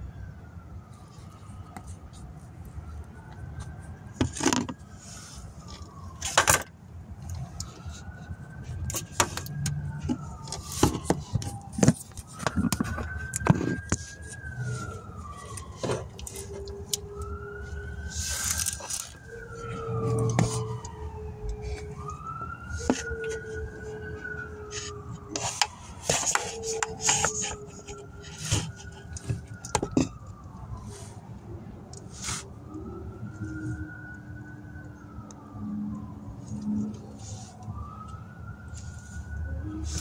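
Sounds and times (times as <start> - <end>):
wailing tone: 8.8 - 30.9.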